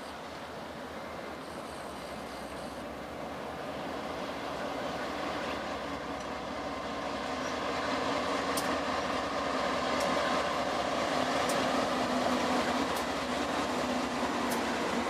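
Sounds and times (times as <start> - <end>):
diesel locomotives droning: 0.0 - 15.0
faint sharp ticks: 11.4 - 11.7.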